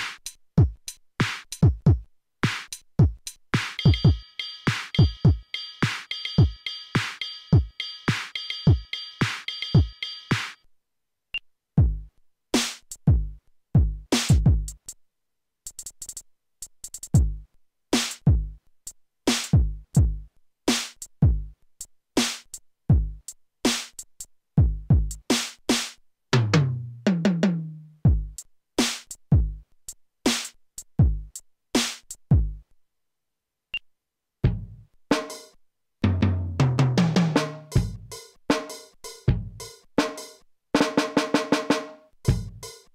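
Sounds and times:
electronic drum beat: 0.0 - 10.6, 11.8 - 14.8, 16.9 - 17.4, 19.3 - 20.2, 22.2 - 23.2, 24.6 - 25.3, 26.4 - 29.6, 30.3 - 31.4, 36.1 - 42.9
tom drum fill: 3.0 - 9.9.

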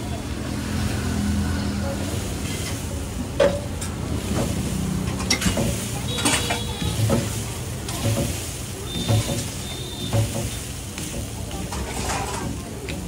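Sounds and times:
metal spatula scraping on griddle: 3.8 - 12.6.

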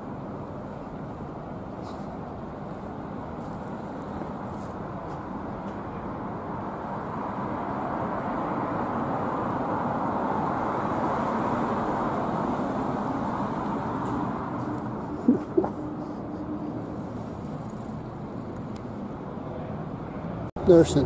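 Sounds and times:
vehicle passing: 6.3 - 21.0.

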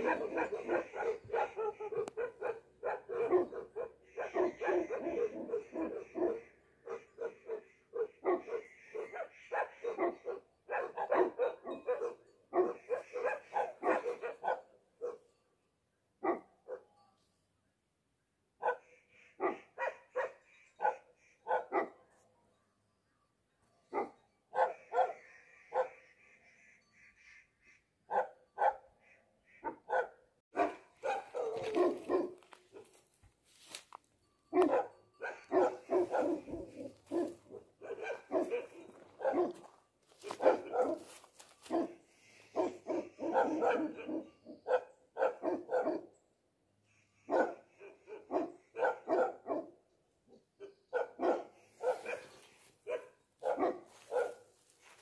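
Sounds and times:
dogs barking deeply: 0.0 - 15.3, 18.6 - 22.0, 23.9 - 26.0, 28.1 - 29.0, 29.6 - 33.0, 34.5 - 46.1, 47.3 - 49.8, 50.6 - 55.0.

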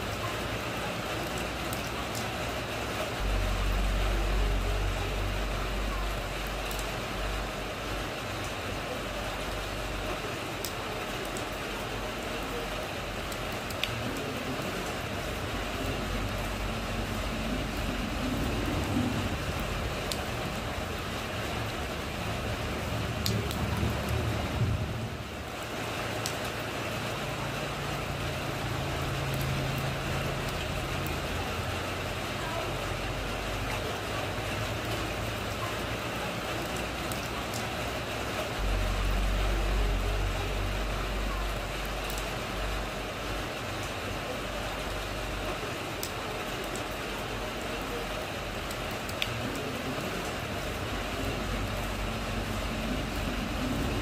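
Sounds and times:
rain on a puddle: 0.0 - 54.0
low rumble: 3.2 - 8.0, 16.0 - 25.4, 38.6 - 43.0.

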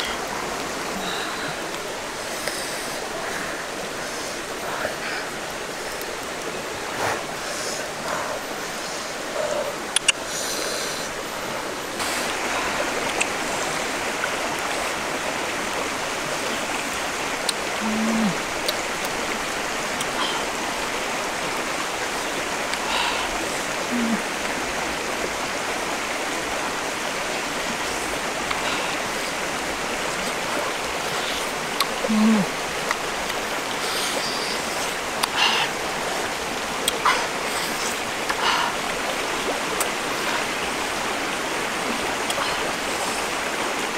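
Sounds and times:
low hums: 0.0 - 43.8
stream running over rocks: 0.0 - 43.9
mouth clicks from eating: 9.4 - 10.2, 13.0 - 13.4, 17.4 - 19.2.

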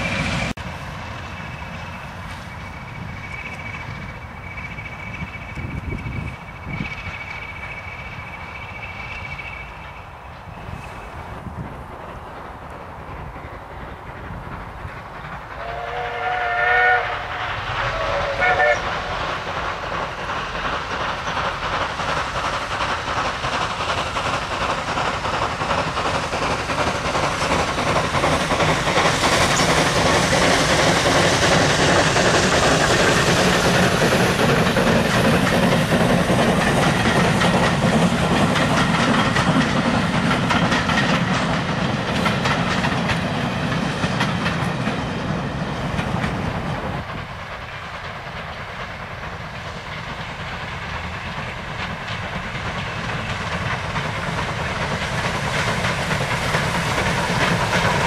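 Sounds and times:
steam locomotive passing: 0.0 - 58.0
wheels clicking over rail joints: 17.6 - 58.0.

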